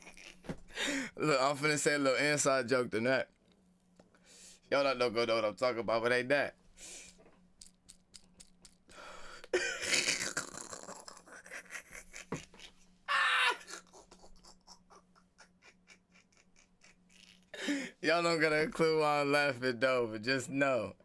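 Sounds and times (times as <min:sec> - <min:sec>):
man laughing breathlessly: 0:00.0 - 0:01.2, 0:08.9 - 0:18.0
breathy gasps: 0:00.7 - 0:01.2, 0:08.9 - 0:09.6, 0:17.6 - 0:18.0.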